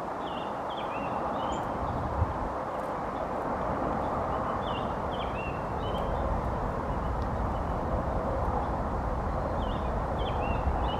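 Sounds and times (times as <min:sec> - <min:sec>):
songbird singing: 0:00.0 - 0:10.9.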